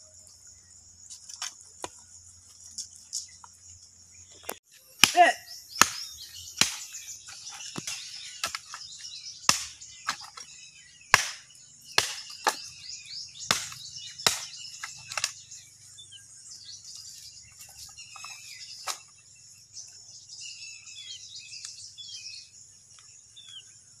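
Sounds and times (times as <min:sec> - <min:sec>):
birds chirping: 0:00.0 - 0:24.0
cleaver chopping into bone: 0:05.0 - 0:08.8, 0:09.4 - 0:10.4, 0:11.1 - 0:12.8, 0:13.5 - 0:15.4.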